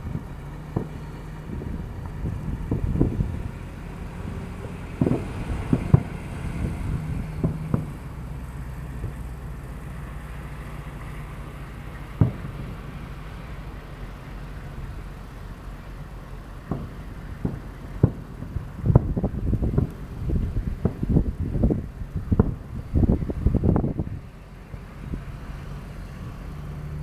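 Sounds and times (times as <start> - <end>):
fireworks bursting: 0.0 - 23.6
low rumble: 0.0 - 27.0.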